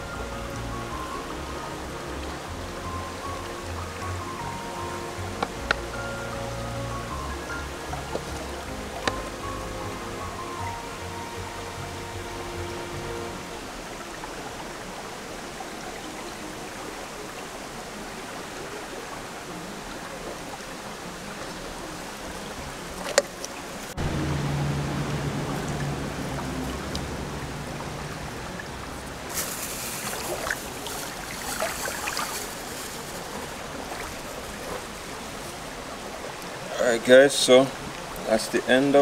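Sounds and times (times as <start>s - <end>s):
stream running water: 0.0s - 39.0s
low hum: 21.3s - 36.6s.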